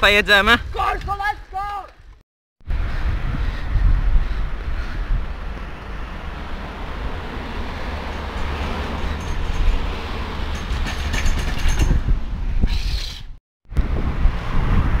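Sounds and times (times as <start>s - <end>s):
wind buffeting microphone: 2.6s - 15.0s
bike rattling down concrete steps: 8.0s - 12.1s.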